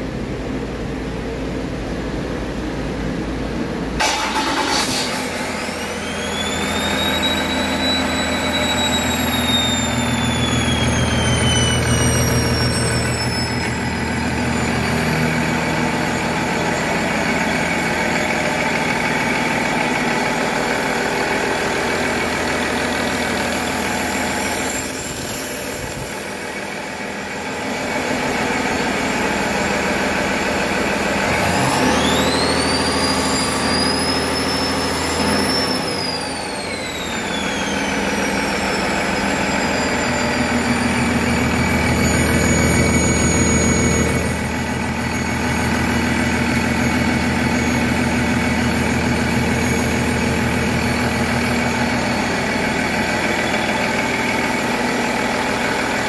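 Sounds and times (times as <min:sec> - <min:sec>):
diesel engine idling and revving: 0:00.0 - 0:56.0
turbo whistle: 0:05.0 - 0:20.2, 0:31.5 - 0:56.0.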